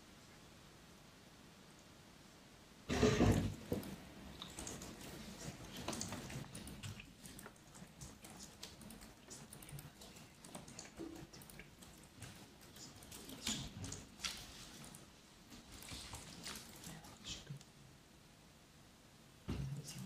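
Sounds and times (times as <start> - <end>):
typing on computer keyboard: 4.4 - 14.1.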